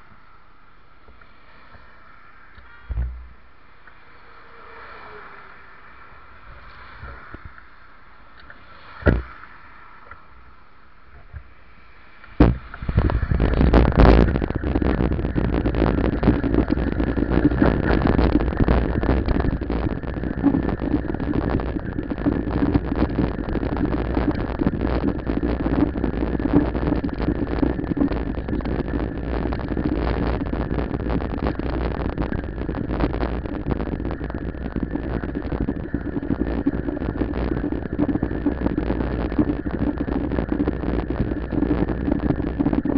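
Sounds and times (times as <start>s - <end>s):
bicycle road rumble: 0.0s - 42.9s
wind buffeting microphone: 11.2s - 42.9s
sharp knocks: 12.4s - 13.1s.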